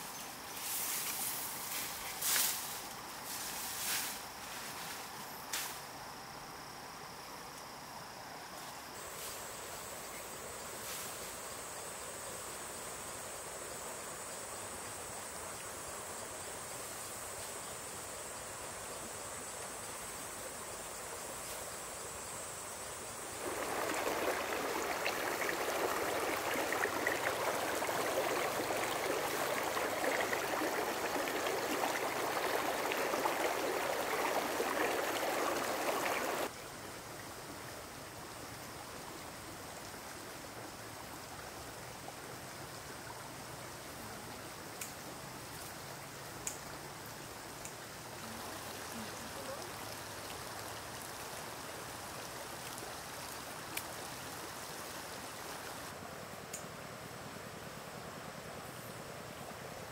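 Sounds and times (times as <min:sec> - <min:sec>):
background hiss: 0:00.0 - 0:59.9
running water: 0:23.2 - 0:36.5, 0:46.7 - 0:56.0.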